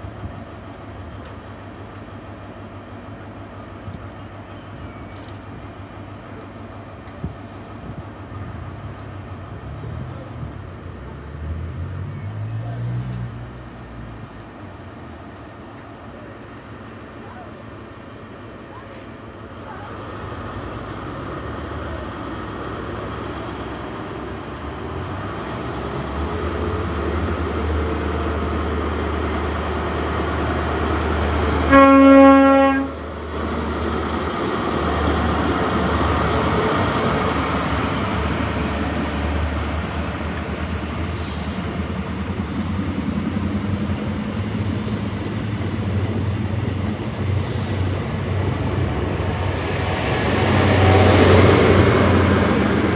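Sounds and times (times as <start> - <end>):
coaches rumbling on rails: 0.0 - 52.9
diesel train engine hum: 0.0 - 52.9
train horn blast: 31.6 - 33.0.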